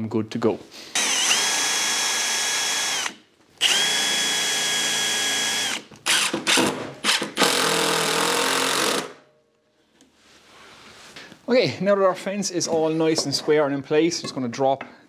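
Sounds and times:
cordless drill driving screws: 0.9 - 9.2.

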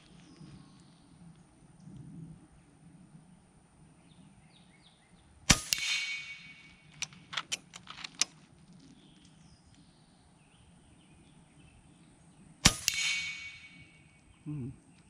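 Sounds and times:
pellet pinging off steel plate: 5.5 - 7.6, 12.7 - 14.0
air rifle shot crack: 5.5 - 7.7, 12.6 - 14.1
rifle lever clicks: 6.9 - 8.4.

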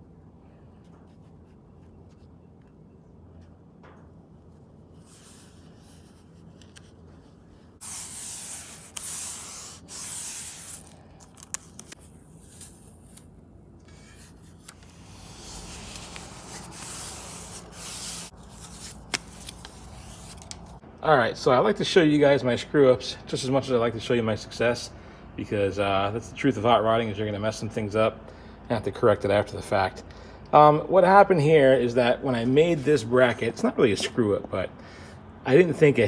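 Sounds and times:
rasping tape peeling: 5.0 - 20.8.

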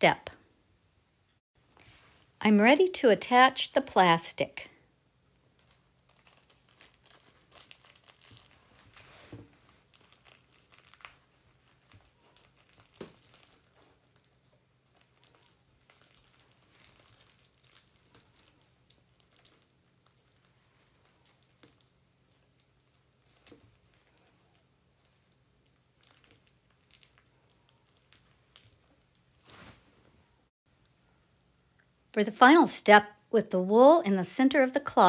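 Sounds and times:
plastic film crinkling: 5.4 - 29.9.

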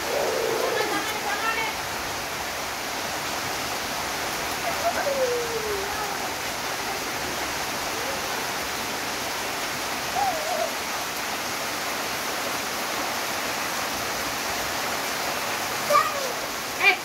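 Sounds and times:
wavering voice: 0.0 - 1.2, 4.6 - 6.3
heavy rain falling: 0.0 - 17.0.

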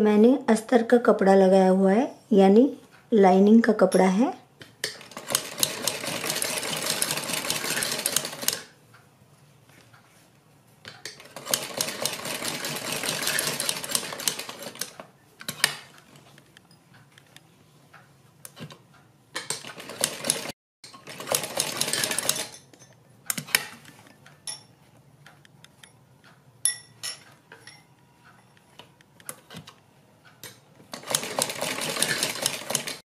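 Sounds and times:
sewing machine stitching: 4.9 - 8.7, 11.2 - 15.9, 19.4 - 22.5, 30.9 - 33.0.

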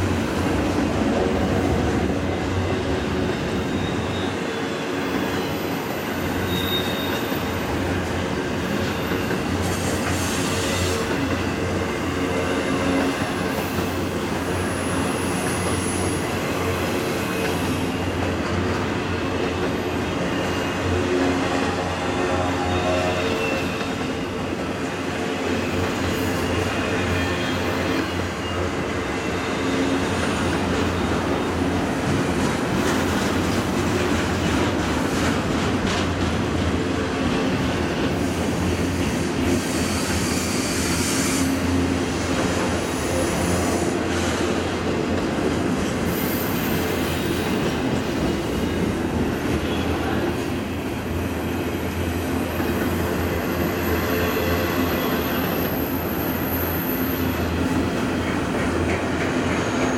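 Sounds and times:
rail joints clickety-clack: 0.0 - 59.9
steel wheels rumbling on rail: 0.0 - 59.9
high wheel squeal: 2.3 - 7.9, 25.6 - 30.2, 51.2 - 57.9.

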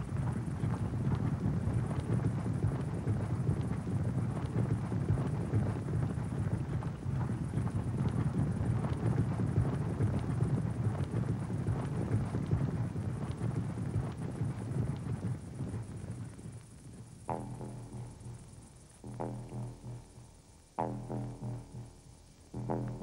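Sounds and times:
horses hoofbeats rumbling: 0.0 - 18.4.

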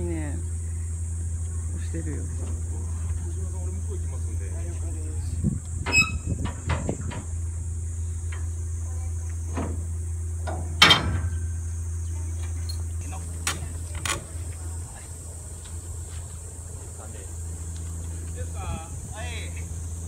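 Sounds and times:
high insect drone: 0.0 - 20.0
low hum: 0.0 - 20.0
metal clanks and knocks: 10.4 - 11.4.

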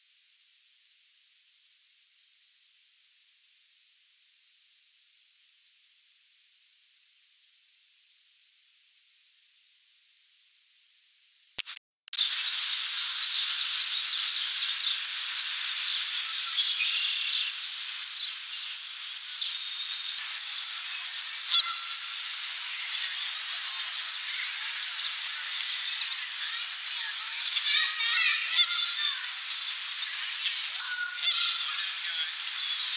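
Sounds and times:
birds chirping: 12.2 - 32.9.

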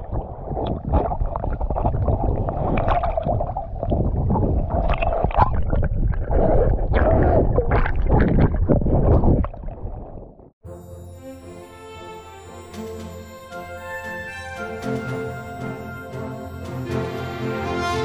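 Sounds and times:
choppy water sloshing and gurgling: 0.0 - 10.6.

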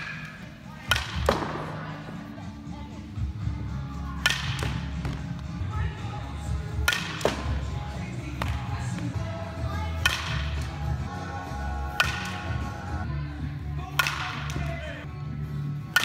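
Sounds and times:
bat striking softballs: 0.0 - 2.2, 4.2 - 5.5, 6.7 - 9.3, 9.9 - 11.0, 11.9 - 12.8, 13.9 - 14.8
background music: 0.0 - 16.0.

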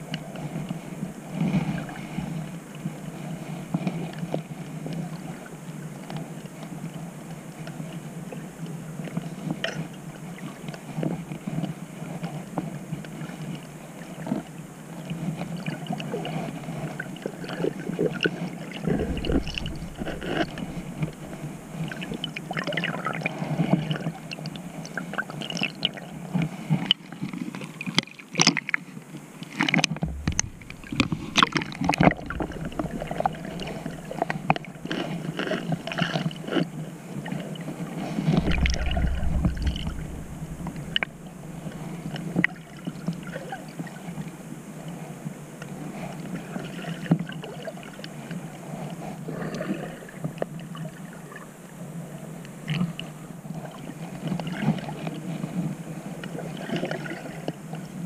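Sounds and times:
muffled underwater water swish: 18.6 - 24.6, 29.6 - 36.7, 37.3 - 44.3
deep rumble: 18.8 - 22.6, 30.0 - 35.4, 38.2 - 42.4
sharp clicks and knocks: 30.0 - 35.0.

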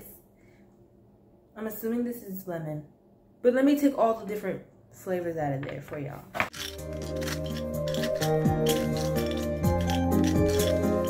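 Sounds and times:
background music with deep bass: 6.6 - 11.0.

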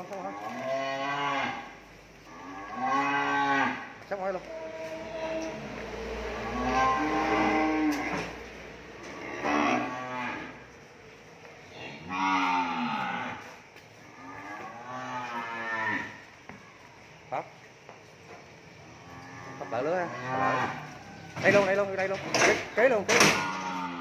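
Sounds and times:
cattle mooing: 0.1 - 3.9, 4.5 - 8.4, 9.0 - 10.6, 11.8 - 16.2, 19.0 - 21.1, 23.2 - 24.0.

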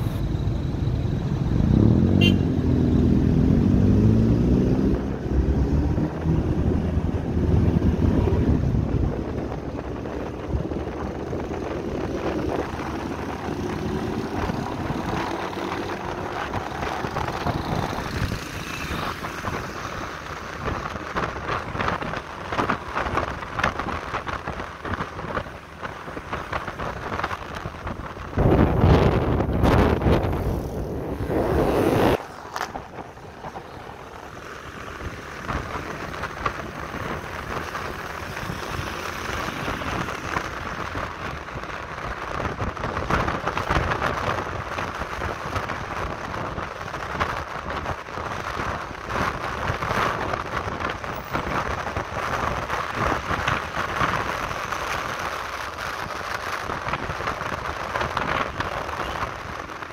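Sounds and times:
wind buffeting microphone: 19.1 - 59.9.

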